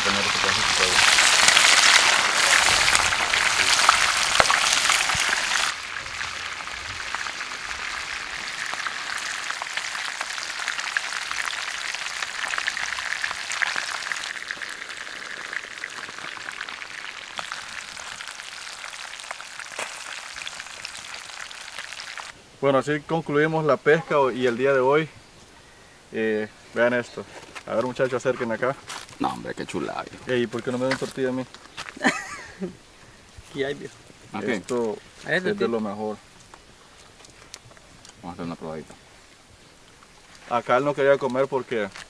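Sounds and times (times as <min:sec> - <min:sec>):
fish frying in hot oil: 0:00.0 - 0:22.4.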